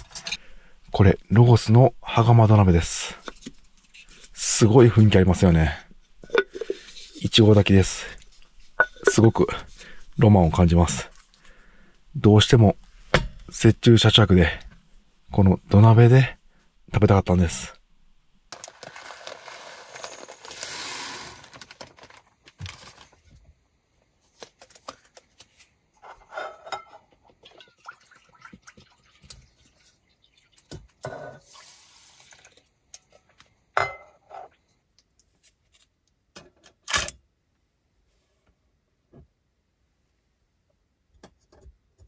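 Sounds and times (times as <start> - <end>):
metal cookware clinking: 6.2 - 6.8, 8.8 - 9.3, 26.3 - 27.0, 33.8 - 34.2
rice grains pouring into pot: 18.7 - 21.7.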